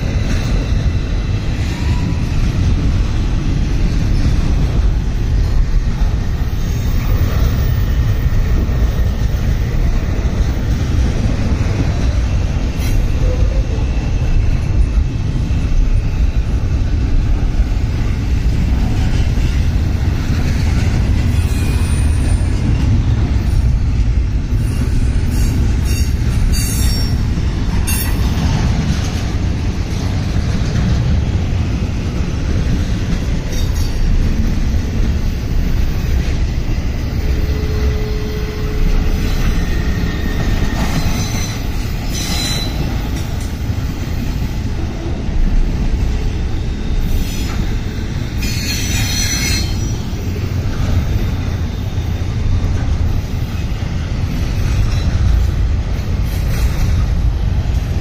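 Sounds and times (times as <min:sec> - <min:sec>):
freight train wheels rumbling: 0:00.0 - 0:58.0.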